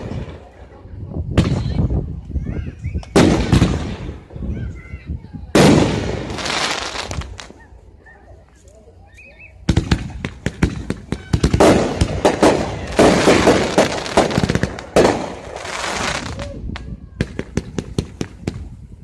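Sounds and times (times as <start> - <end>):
fireworks bangs and crackle: 0.0 - 7.8, 9.5 - 19.0.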